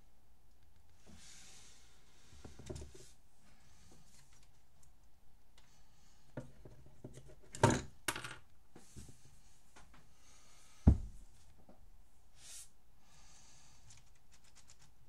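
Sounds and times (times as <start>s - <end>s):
heavy thump: 10.9s - 11.2s.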